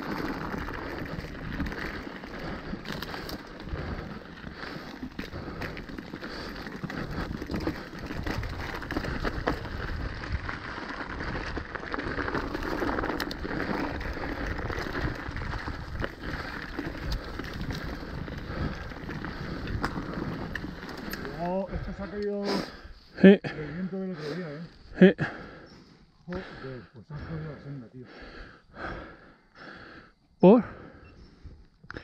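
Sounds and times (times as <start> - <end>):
bike clicking and rattling: 0.0 - 22.8
bike tyres crunching over stones: 0.0 - 22.8.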